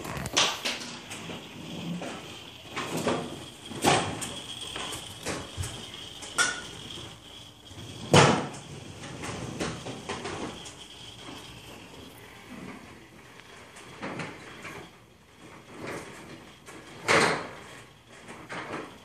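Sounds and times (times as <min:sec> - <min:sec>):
faint high whine: 0:00.0 - 0:19.0
servos moving in bursts: 0:01.0 - 0:13.4.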